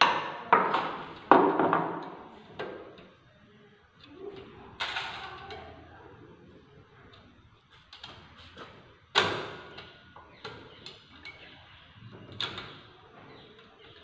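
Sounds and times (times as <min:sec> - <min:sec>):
small metallic clicks and knocks: 0:07.1 - 0:08.4.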